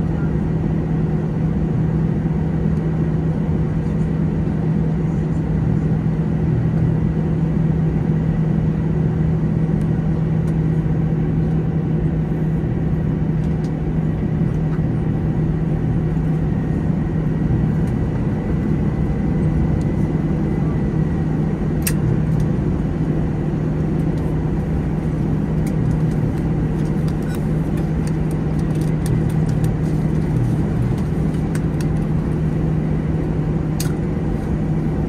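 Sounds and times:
airplane cabin drone: 0.0 - 35.0.

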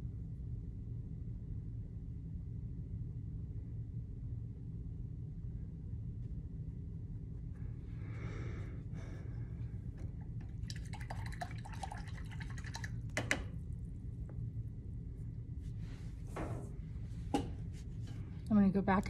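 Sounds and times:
steady low hum: 0.0 - 19.0
paintbrush sloshing in water cup: 10.4 - 13.0.

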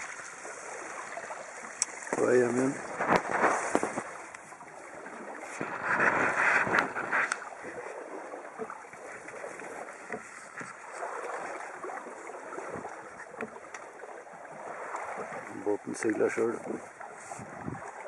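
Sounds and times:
water splashing along boat hull: 0.0 - 18.0
wind: 0.0 - 18.0.

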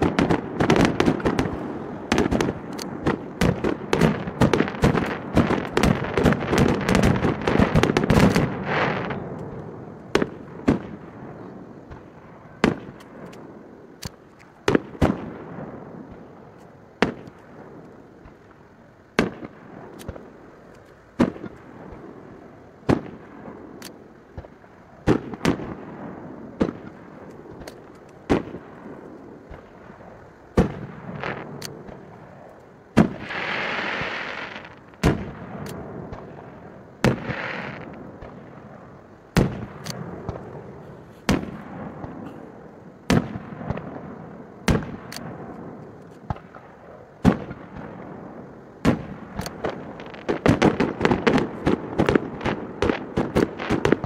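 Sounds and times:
fireworks banging: 0.0 - 54.0
firework hissing rush: 33.0 - 35.8.

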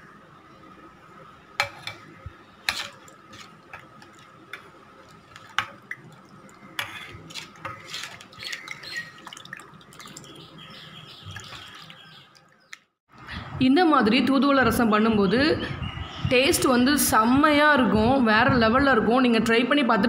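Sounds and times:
liquid sloshing in a bowl: 1.6 - 12.9.

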